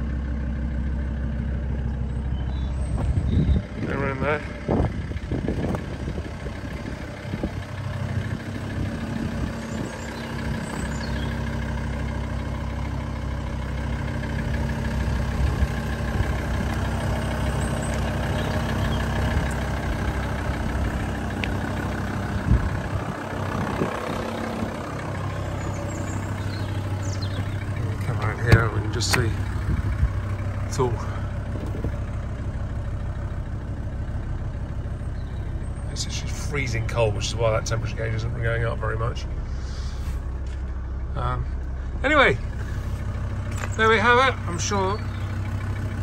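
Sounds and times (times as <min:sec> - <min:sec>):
diesel engine idling: 0:00.0 - 0:46.0.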